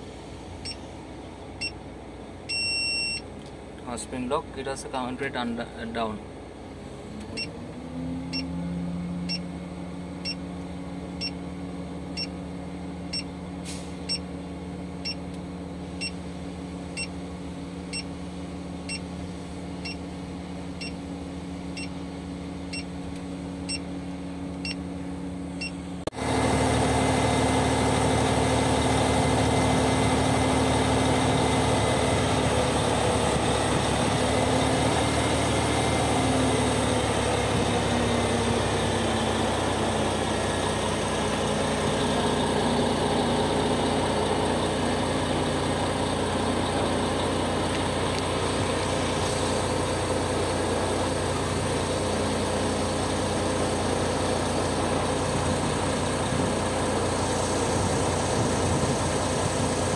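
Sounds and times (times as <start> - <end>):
crane diesel engine and hydraulics: 0.0 - 59.9
short beeps: 2.5 - 3.3.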